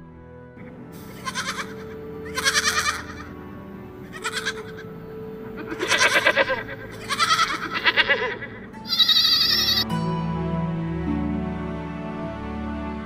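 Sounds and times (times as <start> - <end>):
goats bleating: 1.0 - 3.4, 4.0 - 9.8
higher wavering sound: 1.0 - 9.8.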